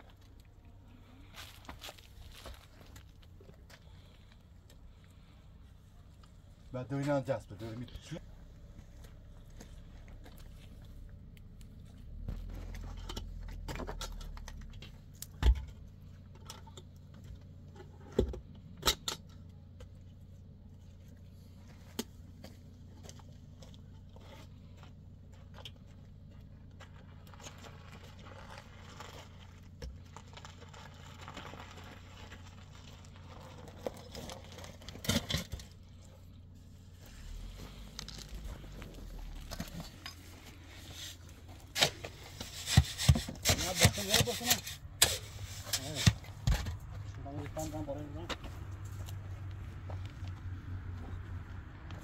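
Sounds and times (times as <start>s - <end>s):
low rumble: 35.9s - 42.3s.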